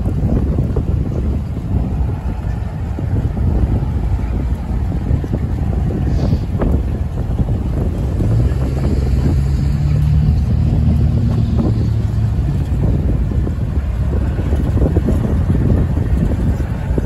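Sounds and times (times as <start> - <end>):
locomotive engine droning: 0.0 - 17.0
wind buffeting microphone: 0.0 - 17.0.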